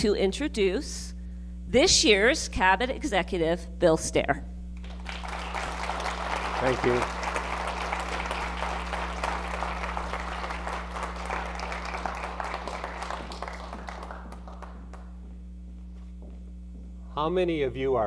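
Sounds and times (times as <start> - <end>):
steady low hum: 0.0 - 18.0
audience applauding: 4.8 - 15.2.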